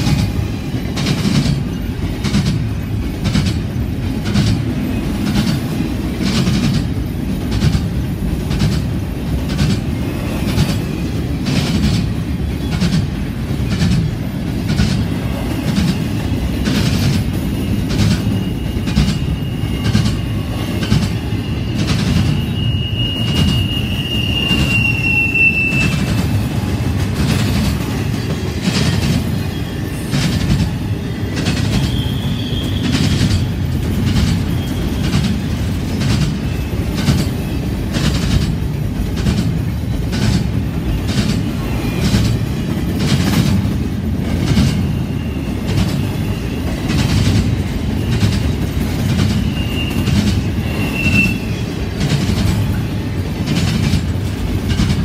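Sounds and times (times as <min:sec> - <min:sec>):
train cars rumbling past: 0:00.0 - 0:55.0
high wheel squeal: 0:15.2 - 0:38.2, 0:40.8 - 0:42.8, 0:44.4 - 0:52.9
wheels clicking over rail joints: 0:45.6 - 0:55.0.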